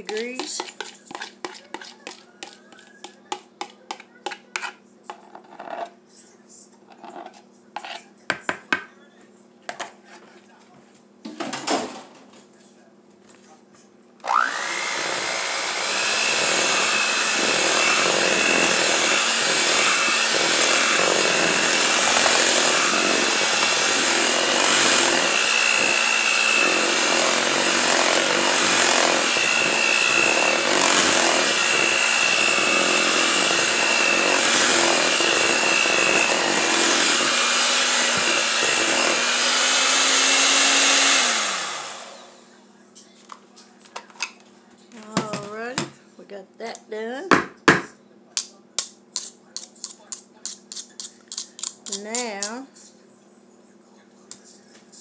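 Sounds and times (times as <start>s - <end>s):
electric hand mixer running: 0.0s - 4.0s, 14.2s - 42.5s.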